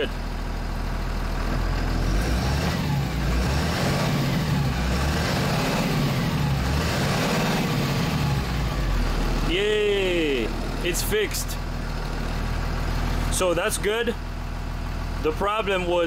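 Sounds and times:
diesel bus engine running: 0.0 - 16.0.

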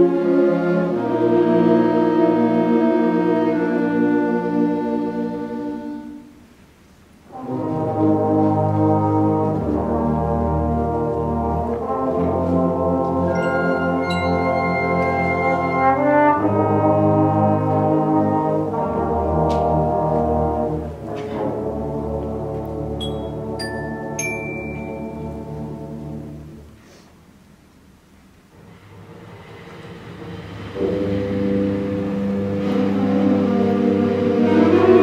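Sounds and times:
concert band playing brass chords: 0.0 - 6.4, 7.3 - 26.6, 29.2 - 35.0
high ringing notes: 13.3 - 15.8, 23.0 - 26.0.

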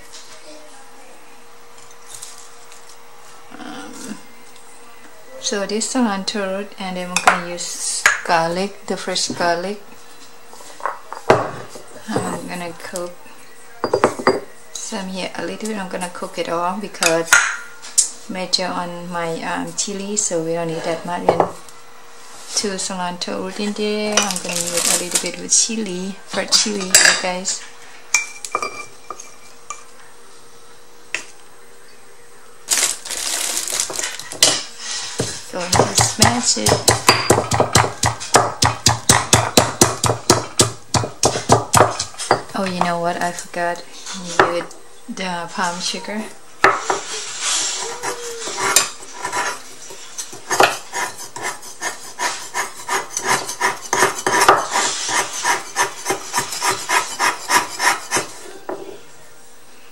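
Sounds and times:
ceramic cup knocking on wood: 13.8 - 14.4
chilies rustling and clattering: 24.1 - 25.4, 32.7 - 36.7
knife scraping sugar on wooden board: 46.9 - 58.4.

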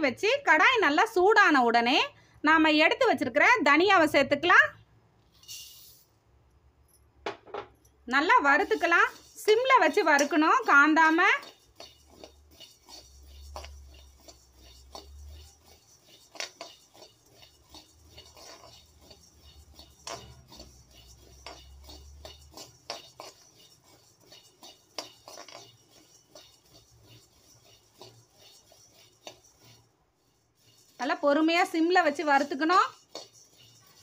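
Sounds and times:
spatula scraping a pan: 8.1 - 34.0
seeds rattling and clicking: 8.6 - 29.8, 32.1 - 34.0.

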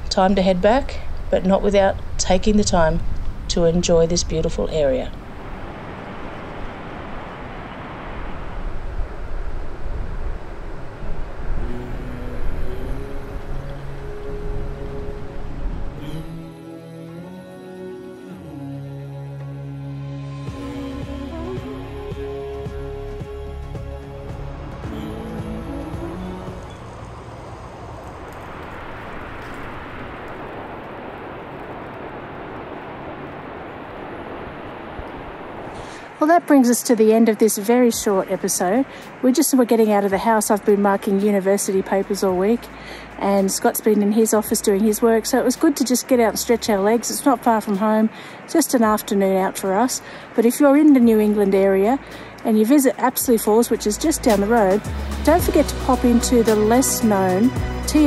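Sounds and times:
steady rushing noise: 0.0 - 16.5, 20.3 - 58.0
wind rumbling on microphone: 0.0 - 16.5, 24.9 - 36.6.

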